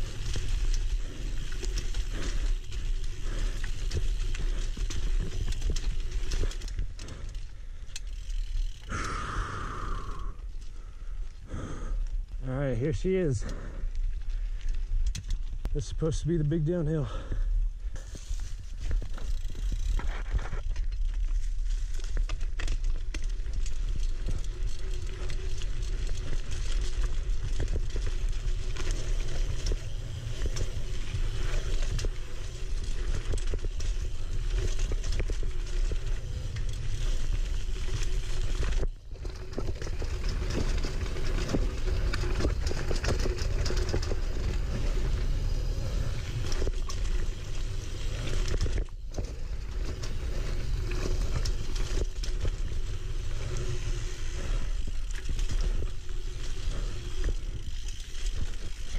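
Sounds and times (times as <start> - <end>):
bike rattling: 0.0 - 58.9
bike tyres running over dirt: 0.0 - 58.9.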